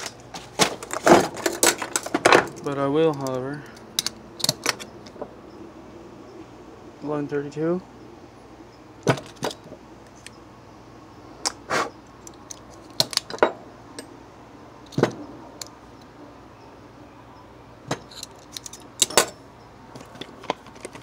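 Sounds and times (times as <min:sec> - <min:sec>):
metallic clicks of caliper: 0:03.1 - 0:05.2, 0:18.0 - 0:19.2.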